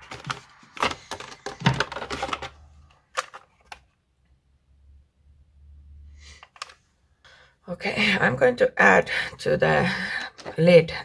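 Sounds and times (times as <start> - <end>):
plastic packaging clicking: 0.0 - 3.9.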